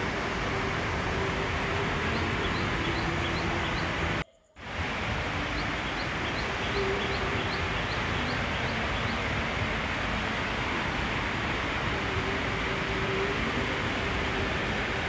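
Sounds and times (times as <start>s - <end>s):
steady rain: 0.0s - 15.0s.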